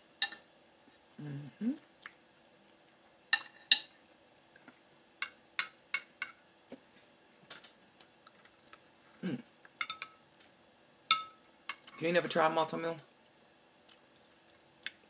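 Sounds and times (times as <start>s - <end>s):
cutlery clinking on plate and bowl: 0.2s - 0.4s, 3.4s - 3.9s, 9.8s - 10.2s, 11.1s - 11.8s.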